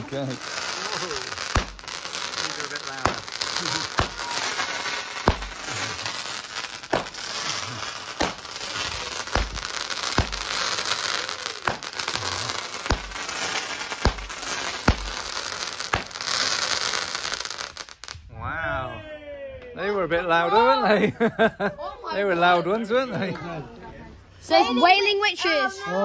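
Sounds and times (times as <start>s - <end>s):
firework bangs: 0.0s - 18.2s
firework crackling and hissing: 0.0s - 18.2s.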